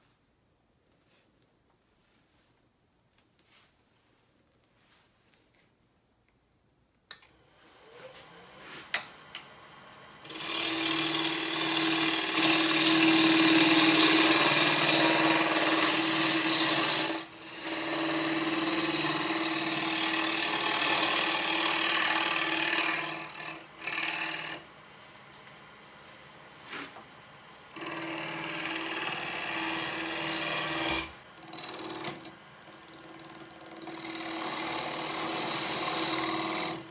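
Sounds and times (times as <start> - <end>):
wood lathe humming: 7.6 - 24.7, 27.7 - 36.9.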